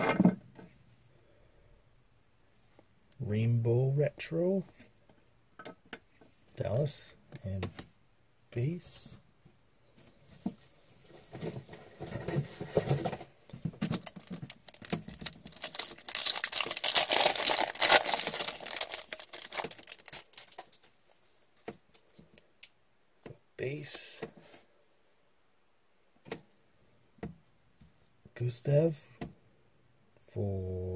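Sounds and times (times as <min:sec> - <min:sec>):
cards rustling: 0:13.8 - 0:21.0
foil wrapper crinkling and tearing: 0:13.9 - 0:20.9.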